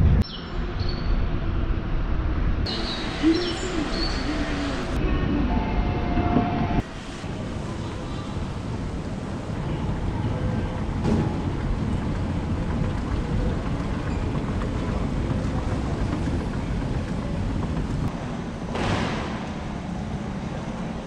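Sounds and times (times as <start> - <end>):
escalator rumble and hiss: 1.3 - 6.1, 6.7 - 21.0.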